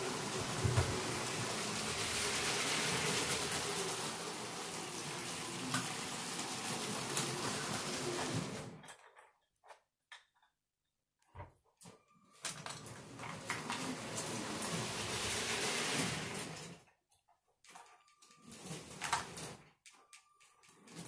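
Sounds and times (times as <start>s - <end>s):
toy train motor whirring: 0.0s - 8.7s, 13.2s - 16.8s
wheels rattling on plastic track: 0.0s - 9.4s, 12.4s - 17.0s, 17.7s - 21.0s.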